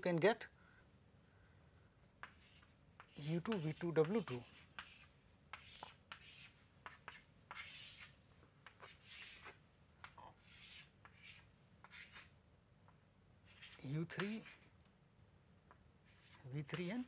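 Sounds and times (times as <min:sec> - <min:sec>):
chalk scratching on chalkboard: 0:02.2 - 0:12.3, 0:13.4 - 0:14.7, 0:16.0 - 0:17.0
chalk taps: 0:02.2 - 0:14.7, 0:15.6 - 0:17.0.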